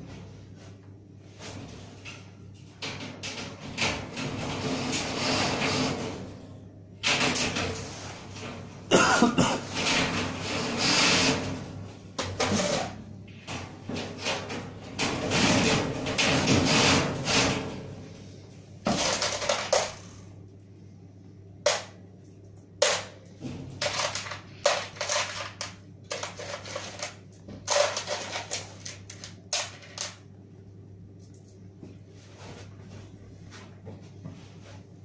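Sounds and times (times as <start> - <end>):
sheet metal rustling: 0.0 - 20.2.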